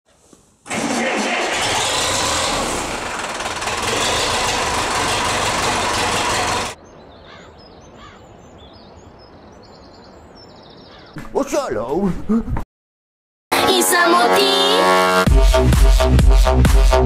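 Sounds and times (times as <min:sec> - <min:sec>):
tractor diesel engine running: 0:00.7 - 0:06.8
birds chirping: 0:06.8 - 0:11.8.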